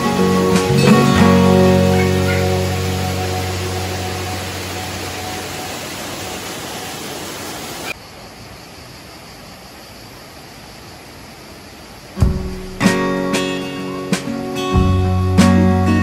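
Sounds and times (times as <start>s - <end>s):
stream running over rocks: 0.0s - 12.8s.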